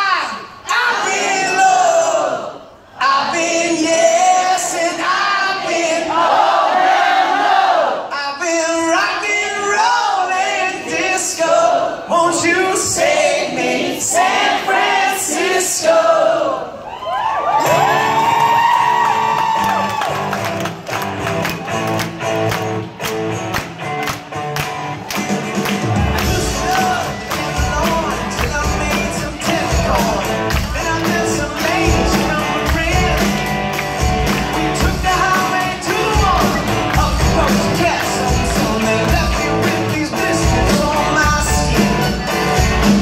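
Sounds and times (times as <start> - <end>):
audience singing together: 0.7 - 8.1, 9.1 - 16.8, 25.8 - 42.6
crowd cheering and whooping: 16.7 - 23.3
band music: 17.5 - 43.0.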